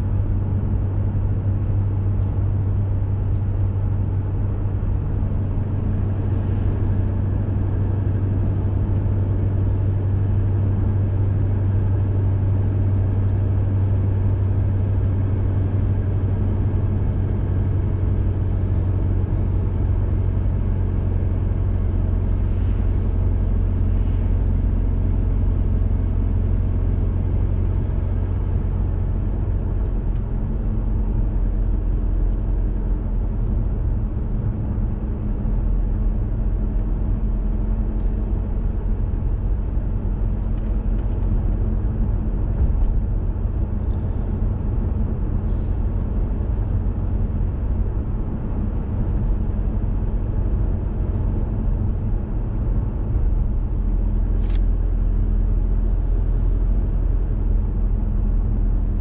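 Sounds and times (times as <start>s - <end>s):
car engine and tyre drone: 0.0s - 59.0s.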